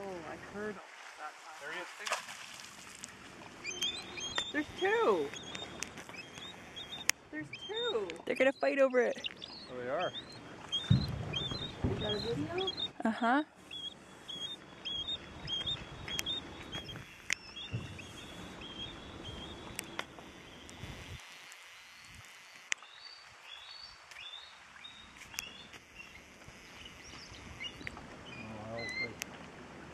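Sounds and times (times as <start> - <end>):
eagles piping calls: 3.6 - 13.0, 13.6 - 21.2
sharp clicks: 3.8 - 9.6.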